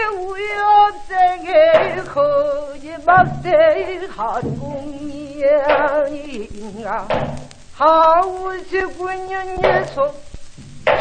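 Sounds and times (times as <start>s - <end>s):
woman singing with vibrato: 0.0s - 11.0s
barrel drum strokes: 3.1s - 6.1s, 9.5s - 11.0s.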